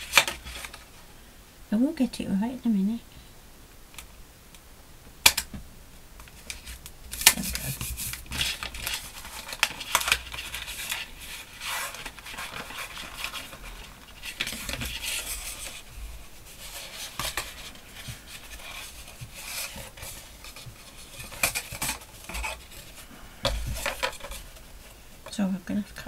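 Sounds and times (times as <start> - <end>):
paper rustling and crinkling: 0.0 - 1.1, 6.2 - 25.4.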